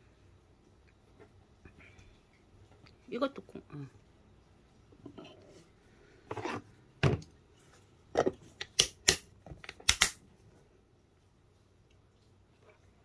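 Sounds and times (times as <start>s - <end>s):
container lids snapping shut: 8.2s - 10.2s.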